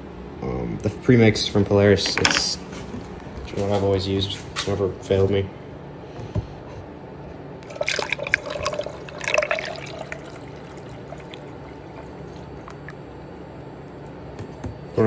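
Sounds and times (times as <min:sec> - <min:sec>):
liquid pouring into a funnel: 0:07.6 - 0:13.2.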